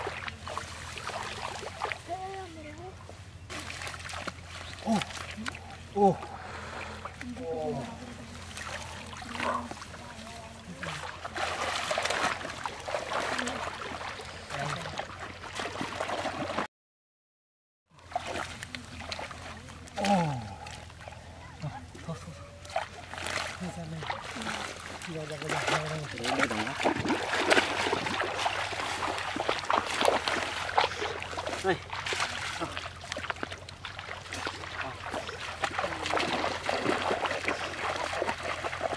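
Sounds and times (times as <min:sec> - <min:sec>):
steady low hum: 0:00.0 - 0:16.6
river water splashing: 0:00.0 - 0:16.7, 0:18.0 - 0:38.9.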